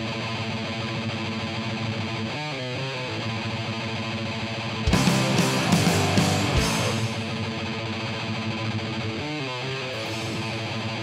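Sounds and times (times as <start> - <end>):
distorted electric guitar: 0.0 - 11.0
full-band hits: 4.9 - 7.8, 10.0 - 11.0.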